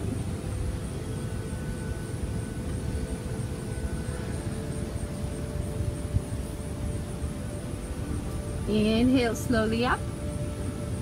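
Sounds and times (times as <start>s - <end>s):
faint hum: 0.0s - 11.0s
low rumble: 0.0s - 11.0s.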